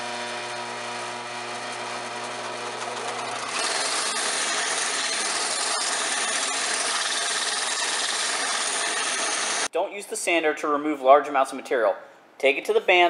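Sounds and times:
belt sander motor hum: 0.0s - 9.7s
wood sanding noise: 1.8s - 9.7s.

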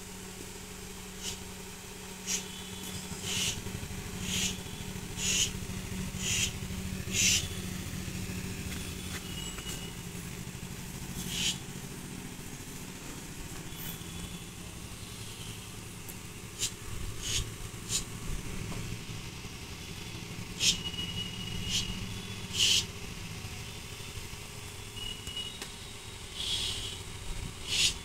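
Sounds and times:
low mechanical hum: 0.0s - 28.0s
snake hissing: 1.1s - 1.6s, 2.2s - 7.7s, 11.0s - 11.8s, 16.5s - 18.2s, 20.5s - 23.0s, 26.3s - 27.0s, 27.6s - 28.0s.

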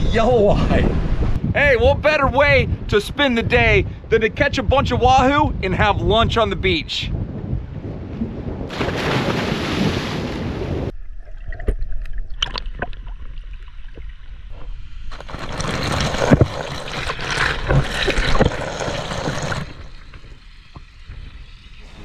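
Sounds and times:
person splashing into water: 8.7s - 10.5s
water gushing from tap: 15.1s - 20.4s.

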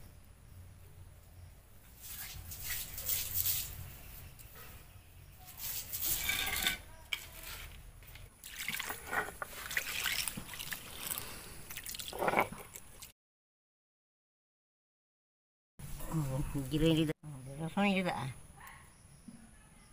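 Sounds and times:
water splashing on stone: 8.0s - 13.1s.

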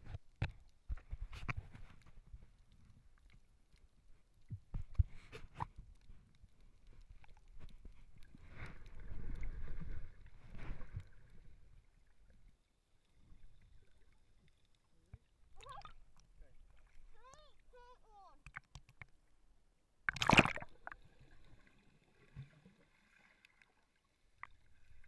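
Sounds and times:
muffled underwater water movement: 0.0s - 25.0s
water swishing: 1.3s - 19.3s, 20.0s - 25.0s
sharp knocks underwater: 20.1s - 21.0s.

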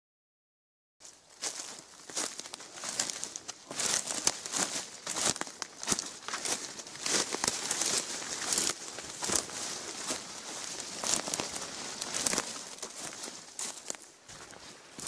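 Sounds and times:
footsteps crunching on dry leaves: 1.0s - 15.0s.

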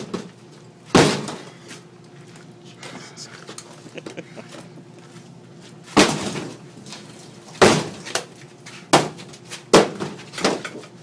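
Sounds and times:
refrigerator being smashed: 0.0s - 0.3s, 0.9s - 1.5s, 5.9s - 8.3s, 8.9s - 10.9s.

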